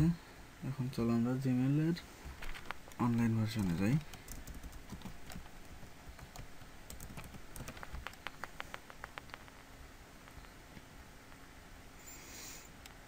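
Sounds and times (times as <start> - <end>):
computer keyboard typing: 2.9 - 9.6.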